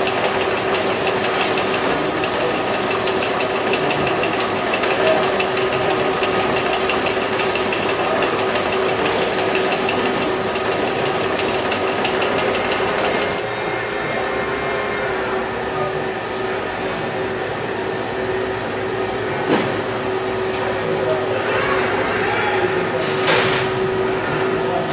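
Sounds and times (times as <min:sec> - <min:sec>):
fast mechanical rattle: 0:00.0 - 0:13.4
machinery hum: 0:00.0 - 0:24.9.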